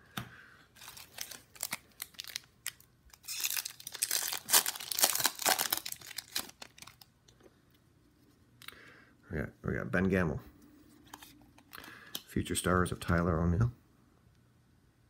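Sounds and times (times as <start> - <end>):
wrapper tearing and crinkling: 0.8 - 7.1.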